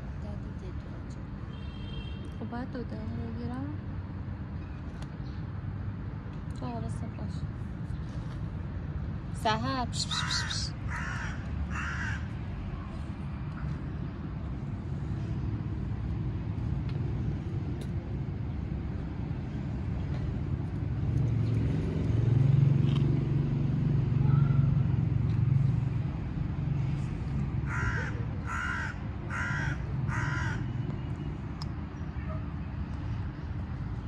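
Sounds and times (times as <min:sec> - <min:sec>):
crow cawing: 0:10.0 - 0:12.4, 0:27.6 - 0:30.7.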